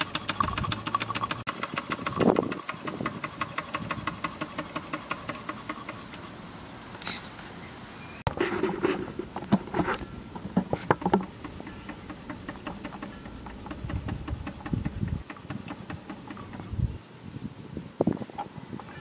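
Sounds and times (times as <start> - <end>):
steam engine clattering: 0.0 - 6.2, 10.9 - 16.8.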